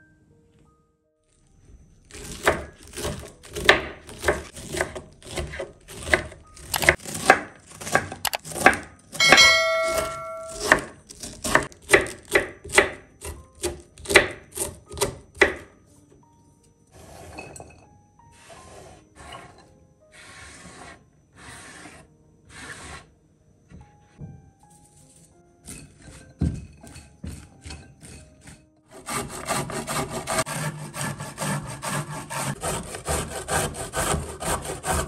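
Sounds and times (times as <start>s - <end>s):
knife chopping cabbage on board: 2.1s - 9.4s, 10.4s - 15.7s
chiming notification sound: 9.2s - 10.8s.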